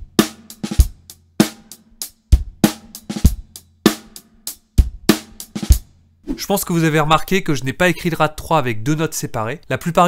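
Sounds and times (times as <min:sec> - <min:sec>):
drum kit rock beat: 0:00.0 - 0:06.4.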